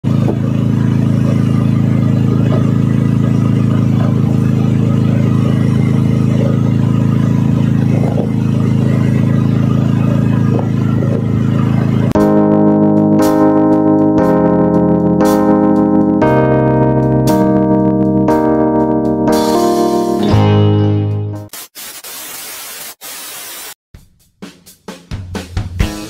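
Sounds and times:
boat engine running: 0.0 - 19.0
piano music: 12.1 - 21.5.

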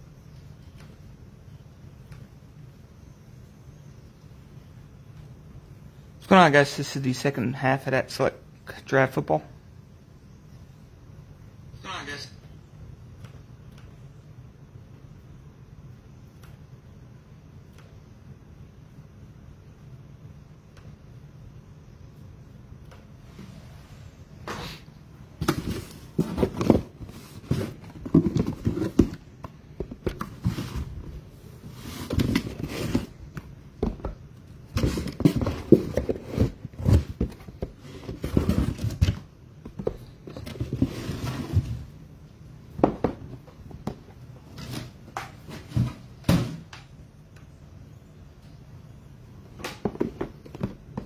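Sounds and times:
cardboard boxes knocking and scraping: 25.4 - 33.2, 33.8 - 42.0, 42.8 - 46.7, 49.8 - 51.0.

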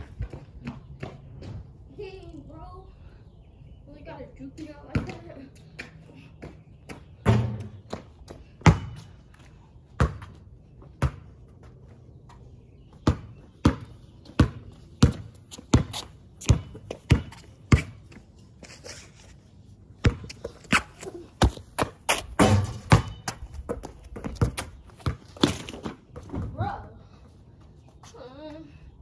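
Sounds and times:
basketball bouncing on pavement: 0.0 - 1.7, 4.6 - 18.4, 19.9 - 26.8.

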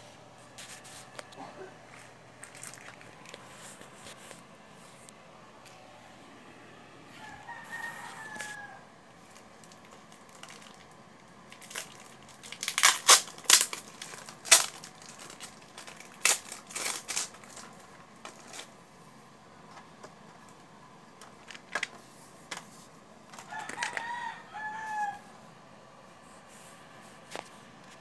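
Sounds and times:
crinkling handling noises: 0.0 - 6.0, 7.2 - 25.3, 26.1 - 28.0
rooster crowing: 7.0 - 9.0, 23.4 - 25.4.

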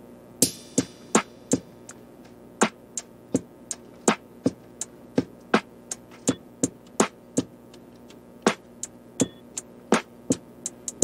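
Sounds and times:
background music with percussive beat: 0.4 - 11.0.

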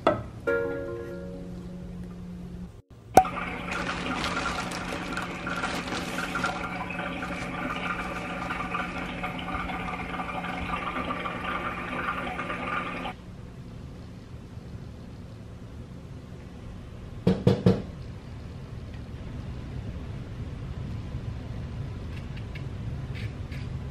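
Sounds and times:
tap water running into sink: 3.2 - 13.1.

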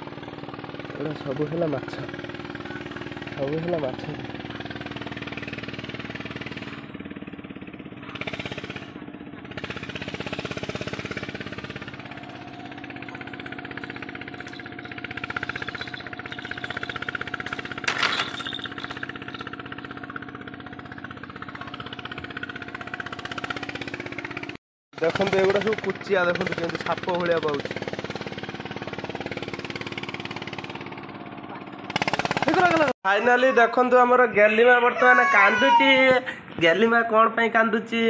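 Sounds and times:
engine running: 0.0 - 34.6.

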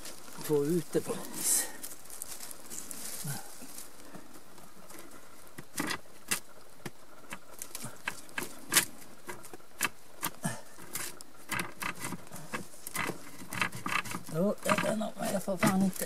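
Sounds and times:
hand scraping on rock: 0.0 - 16.0.

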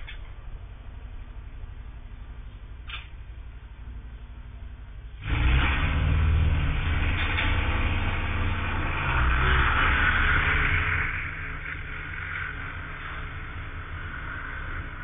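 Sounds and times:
vehicle engine rumble: 0.0 - 15.0
road noise: 5.1 - 15.0.

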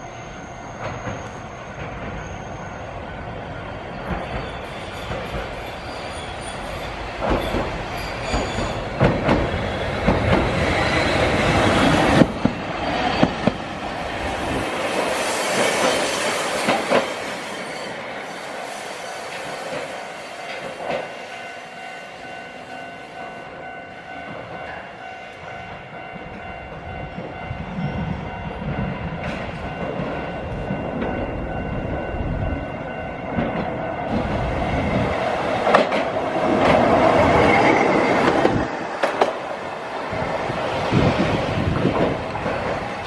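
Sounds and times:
streetcar rumbling with whine: 0.0 - 43.0
wheels clicking over rail joints: 7.2 - 14.0, 35.2 - 39.5.

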